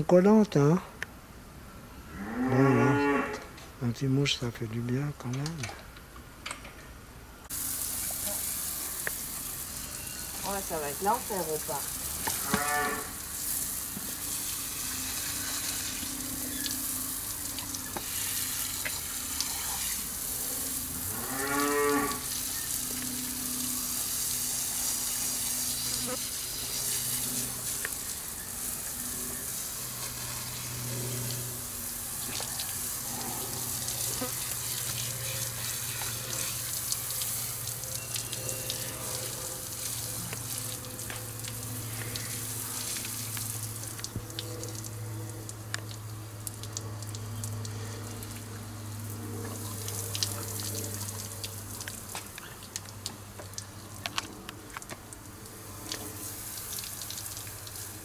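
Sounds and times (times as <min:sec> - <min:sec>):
water splashing from a hose: 0:07.5 - 0:58.0.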